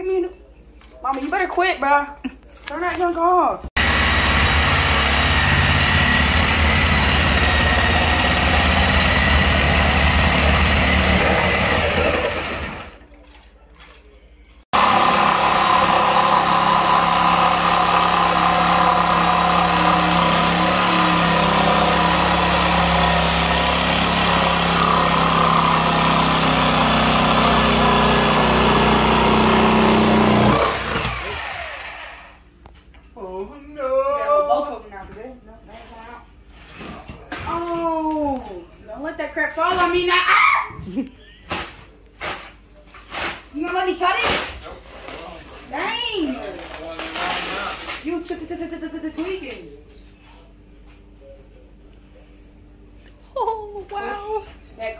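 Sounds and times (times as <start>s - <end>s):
power saw cutting wood: 3.8s - 13.0s, 14.7s - 32.4s.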